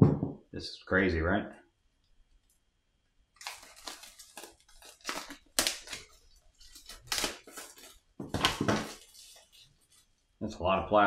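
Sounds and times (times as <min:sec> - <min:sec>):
plastic wrapping crinkling and tearing: 0:03.4 - 0:10.2.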